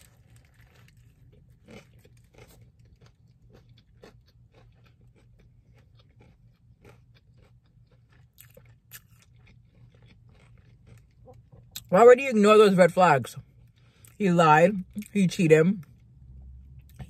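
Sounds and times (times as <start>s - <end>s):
chewing burger: 0.0s - 11.9s, 13.4s - 14.2s.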